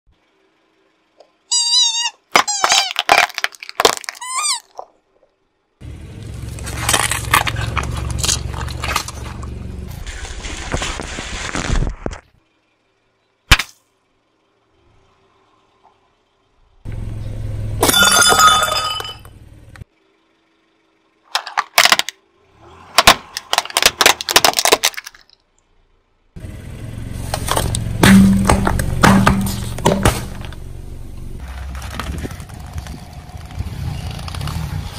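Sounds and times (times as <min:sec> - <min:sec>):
squeeze toys squealing: 0:01.4 - 0:03.3, 0:04.0 - 0:04.9
cans being crushed: 0:02.4 - 0:04.3, 0:23.0 - 0:25.2
tyre rumbling and crunching: 0:02.4 - 0:05.0, 0:05.8 - 0:12.2, 0:23.0 - 0:25.4, 0:27.1 - 0:34.9
plastic cracking and snapping: 0:23.0 - 0:25.4.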